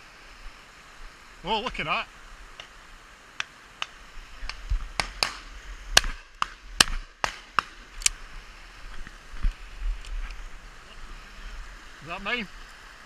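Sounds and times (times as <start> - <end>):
shotgun shots: 6.0 - 7.8.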